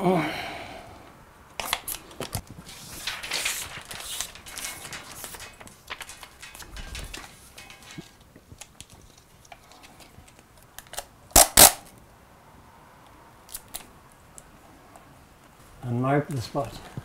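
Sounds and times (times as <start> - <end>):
film and tape rustling: 1.5 - 11.8.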